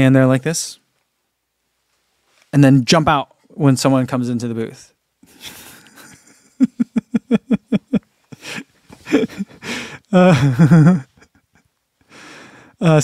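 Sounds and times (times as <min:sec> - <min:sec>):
man laughing: 0:05.3 - 0:11.7.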